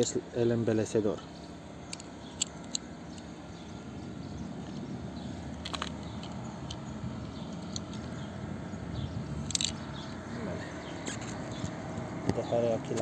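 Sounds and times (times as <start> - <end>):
lock cylinder clicks and scrapes: 1.9 - 3.3, 5.5 - 8.3, 9.4 - 10.2, 11.0 - 11.8.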